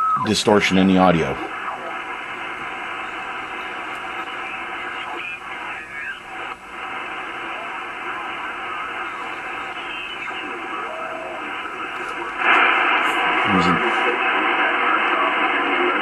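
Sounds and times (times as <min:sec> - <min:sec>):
garbled radio signals: 0:00.0 - 0:16.0
radio static hiss: 0:00.0 - 0:16.0
gliding radio whistles: 0:01.4 - 0:13.4.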